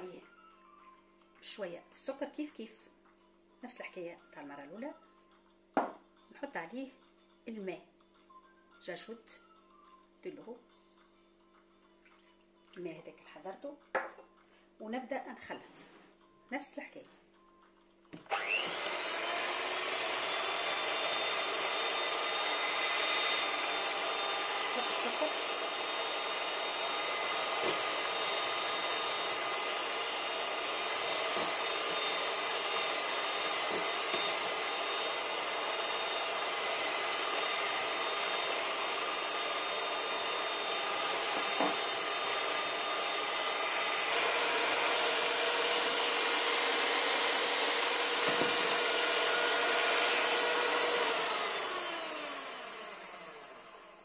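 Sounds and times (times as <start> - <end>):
electric hand mixer whisking: 18.2 - 54.0.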